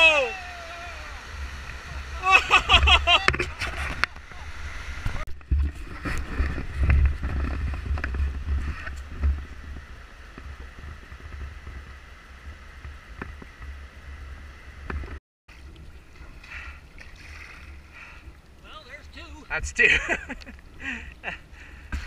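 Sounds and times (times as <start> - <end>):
wind buffeting microphone: 0.0 - 15.2.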